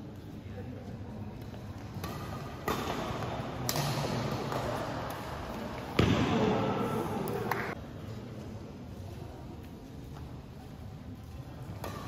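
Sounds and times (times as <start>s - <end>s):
crowd noise in hall: 0.0s - 12.0s
racket hitting shuttlecock: 1.8s - 7.8s, 11.8s - 12.0s.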